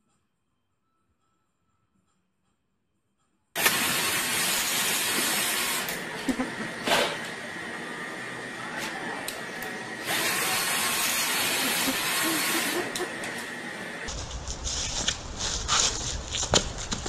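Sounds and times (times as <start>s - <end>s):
apple peeling hiss: 3.6s - 7.2s, 10.0s - 13.4s
drill motor whine: 3.6s - 14.1s.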